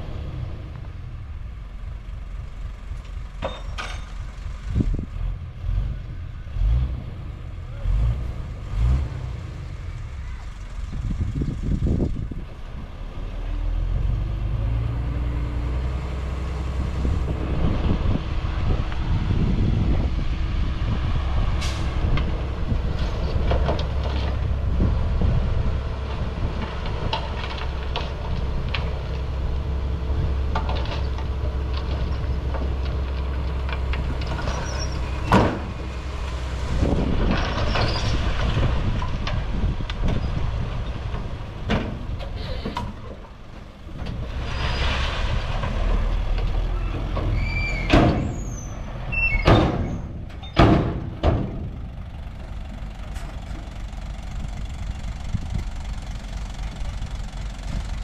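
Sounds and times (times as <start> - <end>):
bulldozer engine running: 0.0 - 58.0
metal clanks: 3.4 - 4.3
high squeals: 46.7 - 50.6.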